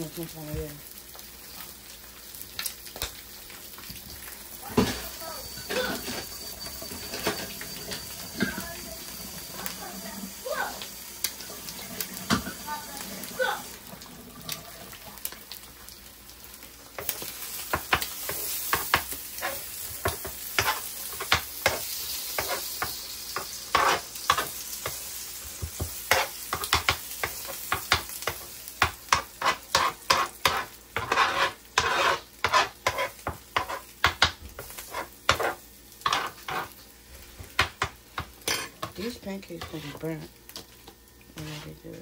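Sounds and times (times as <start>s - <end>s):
eggs sizzling on griddle: 0.0s - 42.0s
metal spoon scraping griddle: 4.8s - 10.2s, 18.2s - 22.8s, 23.4s - 24.5s, 29.1s - 33.9s, 34.6s - 36.8s, 38.4s - 40.3s, 41.4s - 42.0s.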